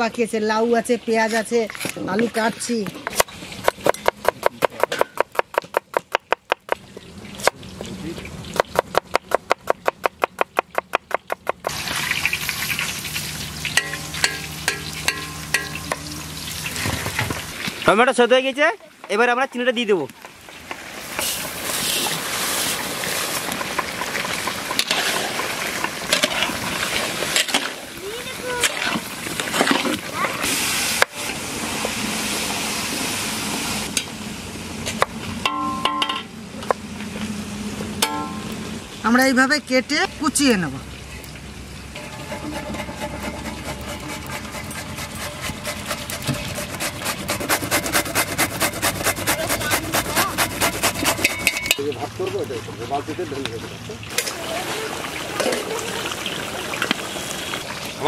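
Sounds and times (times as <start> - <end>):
chutney sizzling in a wok: 11.2 - 18.0, 20.2 - 39.2
gourd rasping on grater: 42.2 - 51.5.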